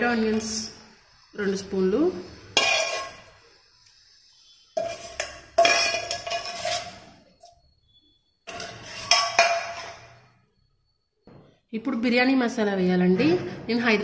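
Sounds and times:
metal spoon clinking cookware: 0:02.5 - 0:03.4, 0:04.8 - 0:07.6, 0:08.4 - 0:10.3.

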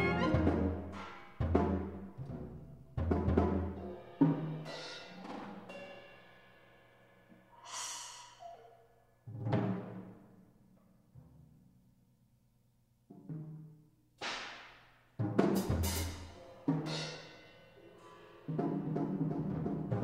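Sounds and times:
held pitched notes: 0:00.0 - 0:01.0.

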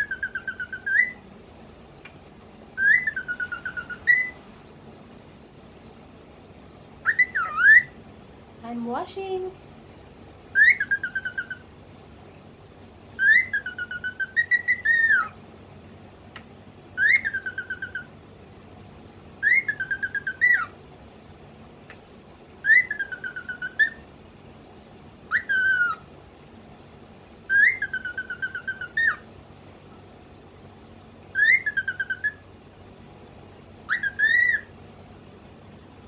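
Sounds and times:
cockatiel whistling: 0:00.0 - 0:01.2, 0:02.8 - 0:04.4, 0:07.0 - 0:08.0, 0:10.5 - 0:11.6, 0:13.2 - 0:15.4, 0:17.0 - 0:18.1, 0:19.4 - 0:20.7, 0:22.6 - 0:24.0, 0:25.3 - 0:26.0, 0:27.5 - 0:29.2, 0:31.3 - 0:32.4, 0:33.9 - 0:34.7.

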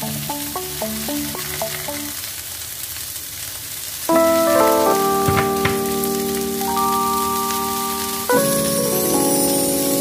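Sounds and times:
okra sizzling in a pan: 0:00.0 - 0:10.0
music with ringing notes: 0:04.1 - 0:10.0.

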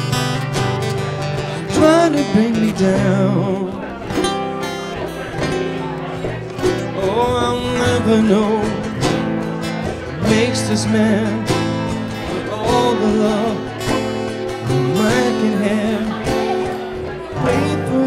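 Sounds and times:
acoustic guitars strummed: 0:00.0 - 0:18.0
man singing: 0:01.4 - 0:04.4, 0:06.8 - 0:18.0.

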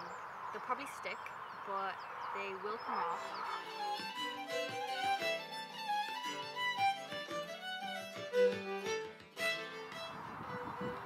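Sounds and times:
violin melody: 0:03.2 - 0:11.0.

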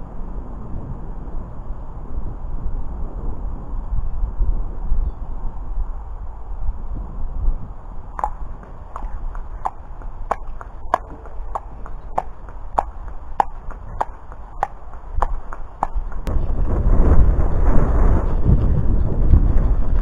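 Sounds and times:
wind rumble on microphone: 0:00.0 - 0:20.0
horse hooves on road: 0:08.1 - 0:20.0.

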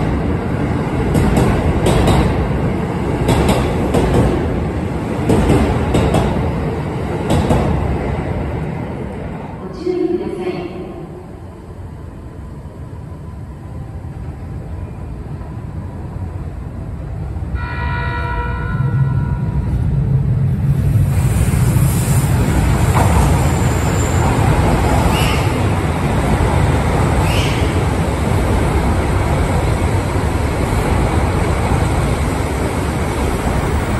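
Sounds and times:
rush of train cars passing: 0:00.0 - 0:09.6, 0:11.2 - 0:33.9
train rumble: 0:00.0 - 0:33.9
train horn: 0:17.6 - 0:19.6.

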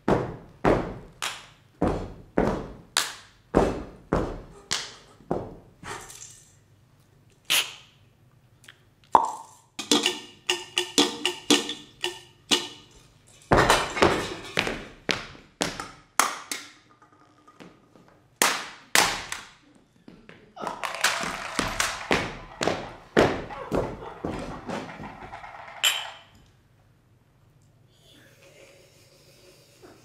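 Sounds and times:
feet stamping: 0:00.0 - 0:01.2, 0:01.8 - 0:02.9, 0:03.5 - 0:04.6, 0:20.1 - 0:25.5.

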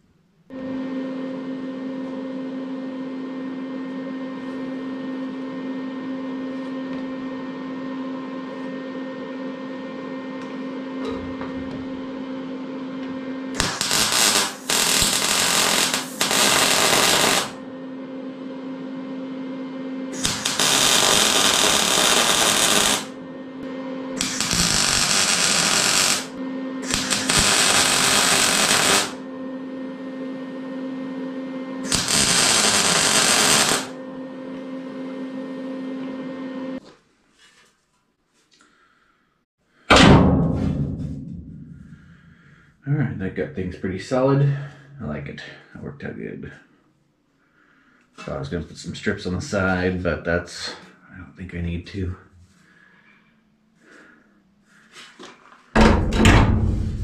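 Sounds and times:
steady low hum: 0:00.5 - 0:36.8, 0:39.9 - 0:46.7, 0:55.8 - 0:57.0
arc welding hiss: 0:13.6 - 0:17.6, 0:20.2 - 0:23.1, 0:24.2 - 0:29.2, 0:31.9 - 0:33.9.

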